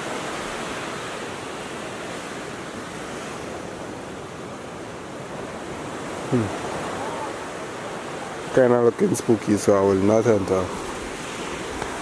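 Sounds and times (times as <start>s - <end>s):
ocean surf: 0.0s - 12.0s
wind: 0.0s - 12.0s.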